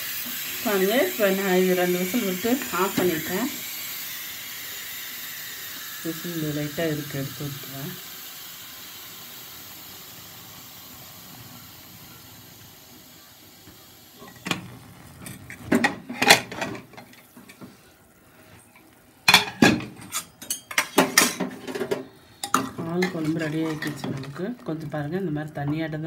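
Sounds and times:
pressure cooker steam hissing: 0.0s - 26.0s
metal lid clanking: 15.3s - 17.2s, 19.3s - 24.4s.

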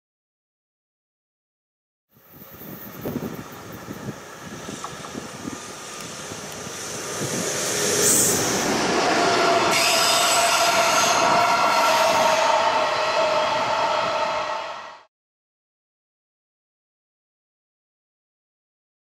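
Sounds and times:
freight train rumbling past: 2.2s - 15.1s.

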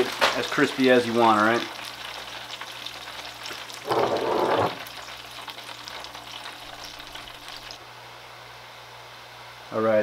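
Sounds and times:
fries sizzling in deep fryer: 0.0s - 8.0s.

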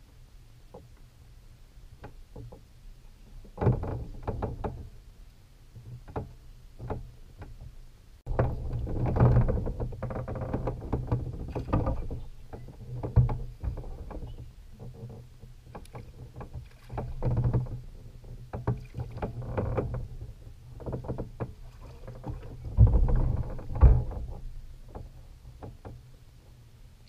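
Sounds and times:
dense clattering with low rumble: 8.3s - 14.4s, 22.2s - 25.9s
clicks and knocks on plastic kayak: 8.3s - 20.2s, 20.8s - 26.1s.

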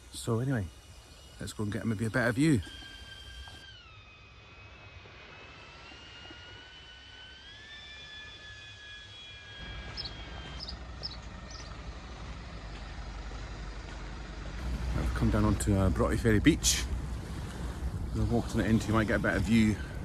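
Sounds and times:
drone propeller whine: 0.0s - 20.0s
bird chirping: 9.6s - 11.9s
low rumble: 9.6s - 20.0s.

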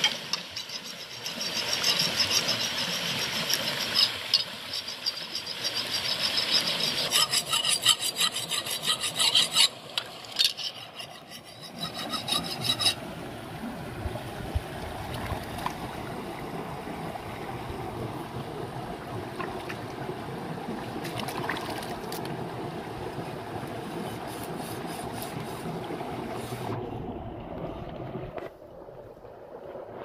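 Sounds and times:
knife rasping on stone: 4.8s - 9.8s, 10.4s - 13.0s.

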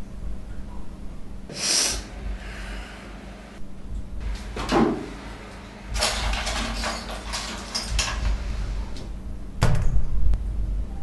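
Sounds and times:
man sniffing through nose: 1.5s - 3.0s.

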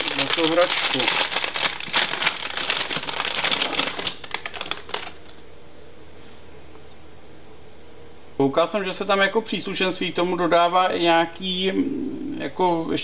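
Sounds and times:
plastic packaging crinkling: 0.0s - 5.5s.

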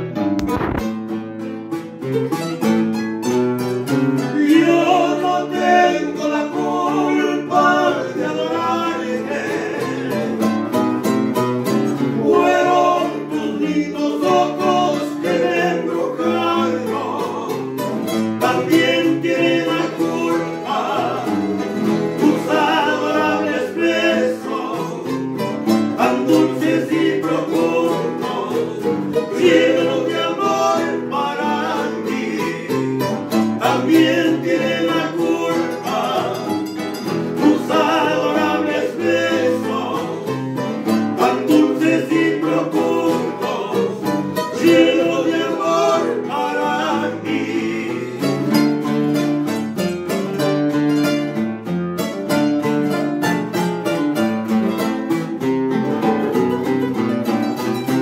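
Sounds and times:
plucked acoustic guitar: 0.0s - 58.0s
person singing: 4.3s - 10.6s, 12.0s - 48.6s.

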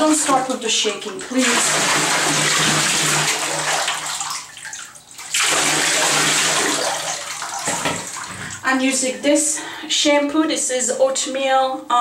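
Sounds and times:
water splashing into tub: 0.0s - 8.7s.

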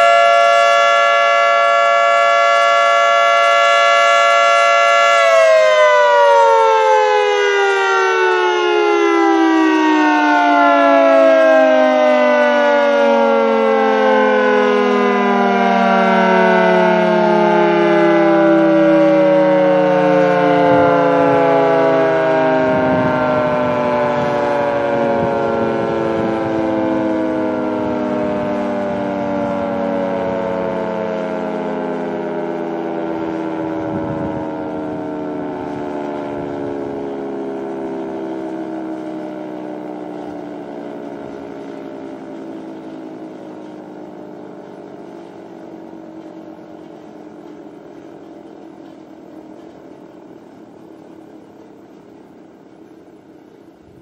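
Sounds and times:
siren winding down: 0.0s - 54.0s.

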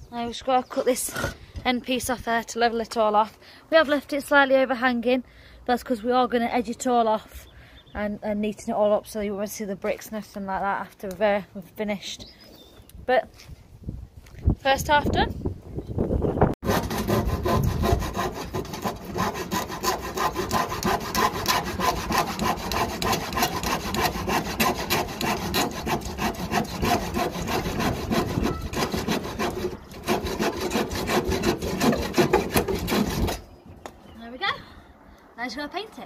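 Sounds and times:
hand saw cutting wood: 16.6s - 33.5s.

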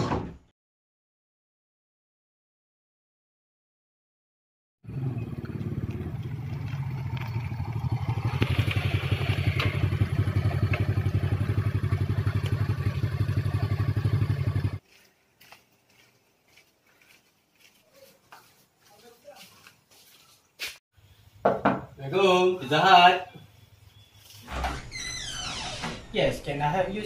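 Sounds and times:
small motorcycle engine running: 4.9s - 14.8s.

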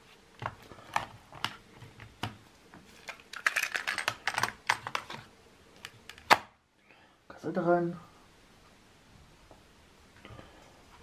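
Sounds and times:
plastic clicks and rattles: 3.0s - 5.2s.

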